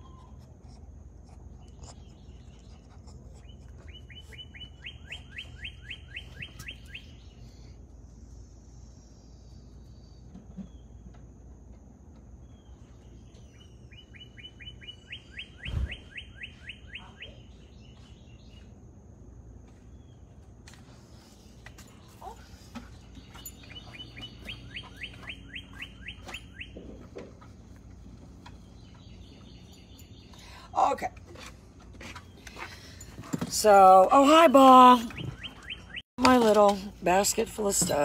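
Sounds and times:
songbird whistling: 0:03.9 - 0:07.6, 0:13.4 - 0:17.5, 0:23.3 - 0:26.8, 0:35.0 - 0:36.0.

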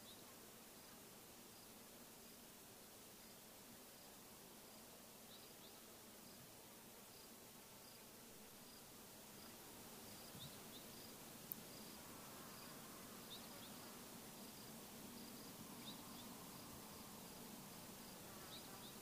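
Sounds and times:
soft hiss: 0:00.0 - 0:19.0
insect chirping in slow pulse: 0:08.6 - 0:19.0.

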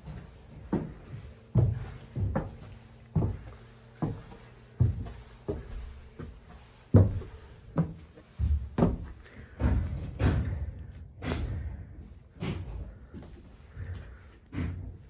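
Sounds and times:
footsteps on wooden floorboards: 0:00.0 - 0:11.6.

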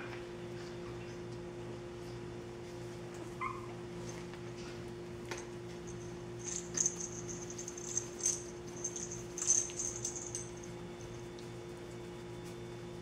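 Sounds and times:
steady low hum: 0:00.0 - 0:13.0
puppies squeaking: 0:03.4 - 0:03.8.

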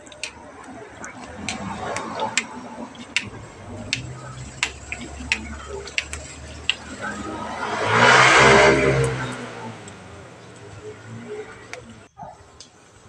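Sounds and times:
passing motor vehicle: 0:00.0 - 0:13.0
wood fire crackling: 0:00.0 - 0:13.0.

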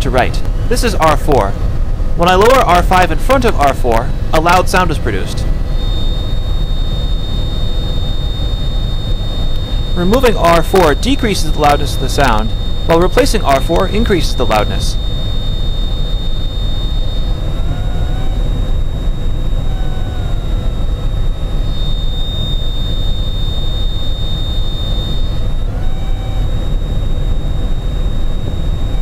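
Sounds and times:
feather high-pitched tone: 0:02.2 - 0:29.0.

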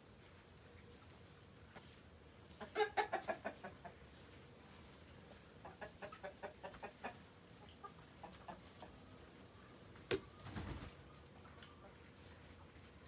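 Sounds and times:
chickens clucking: 0:00.8 - 0:13.0.

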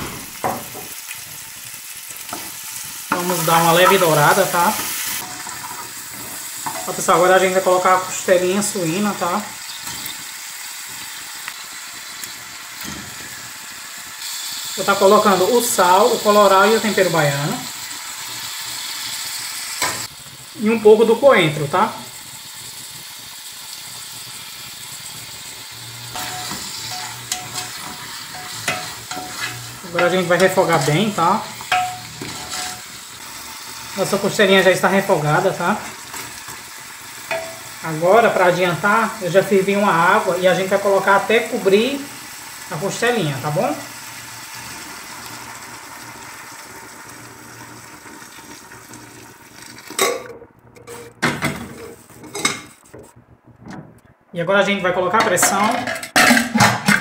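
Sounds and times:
meat sizzling in a pot: 0:00.0 - 0:53.2
spoon stirring and knocking pot: 0:26.2 - 0:32.9, 0:37.3 - 0:37.6
water pouring into pot: 0:44.0 - 0:50.2.

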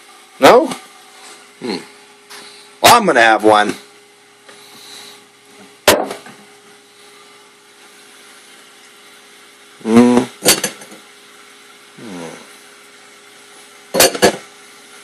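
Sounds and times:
faint steady hum: 0:00.0 - 0:15.0
brief vocal hum: 0:01.6 - 0:02.0, 0:09.8 - 0:10.4, 0:12.0 - 0:12.6
sharp clunk: 0:05.9 - 0:06.3, 0:14.0 - 0:14.4.

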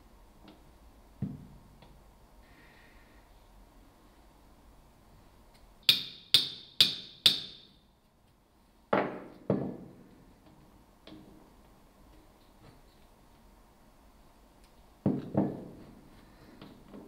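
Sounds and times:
hammer tapping metal punch: 0:05.8 - 0:07.7.

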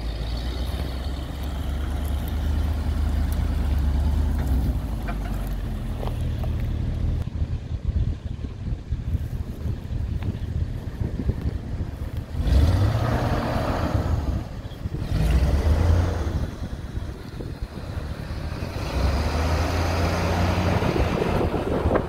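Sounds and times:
truck engine running: 0:00.0 - 0:22.0.

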